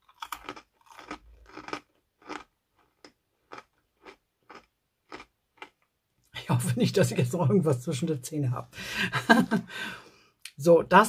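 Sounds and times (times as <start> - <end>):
cereal being chewed: 0.0 - 5.9.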